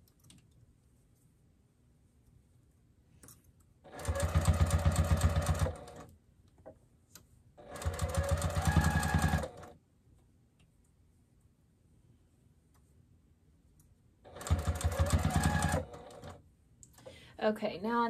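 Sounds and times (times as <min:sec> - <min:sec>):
sewing machine stitching: 0:03.9 - 0:06.1, 0:07.6 - 0:09.7, 0:14.3 - 0:16.4.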